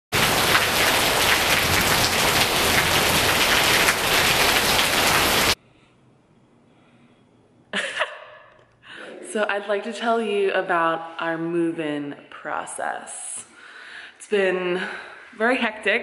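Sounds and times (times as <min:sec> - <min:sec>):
heavy rain on foliage: 0:00.2 - 0:05.6.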